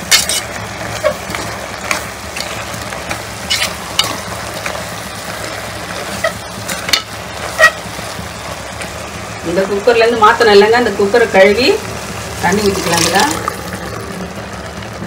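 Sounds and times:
frying sizzle: 0.0 - 15.0
ladle scraping a pot: 0.1 - 2.6, 3.4 - 4.2.

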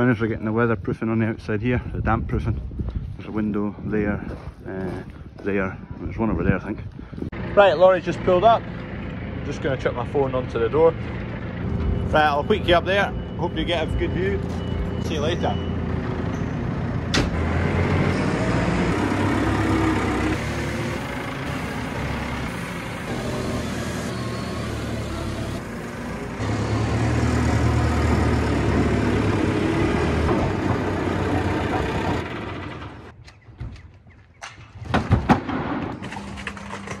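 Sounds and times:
diesel engine revving: 7.4 - 33.2.

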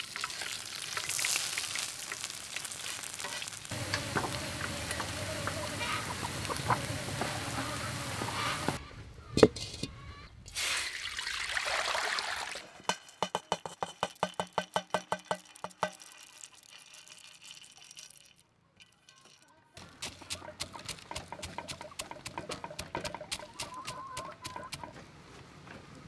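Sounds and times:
peanuts pattering into stone mortar: 0.0 - 7.3, 12.9 - 25.0
steady hiss: 0.0 - 8.8.

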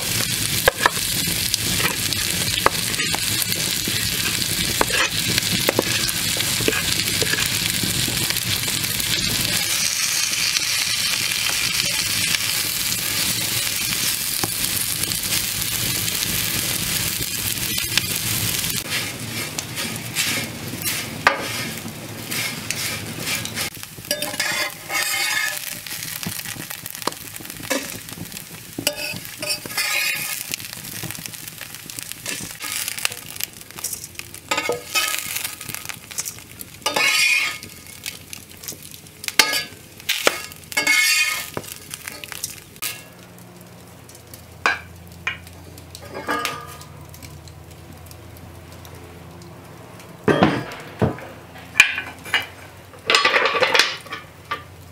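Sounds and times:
onions sizzling in a skillet: 0.0 - 49.7, 51.7 - 54.9
utensil scraping a pan: 0.1 - 14.5, 17.2 - 31.4, 32.2 - 38.1, 39.4 - 43.0
metal cookware clinking: 23.3 - 25.8, 28.8 - 30.4, 33.8 - 38.1, 39.3 - 43.1, 44.7 - 46.9, 51.7 - 54.7.

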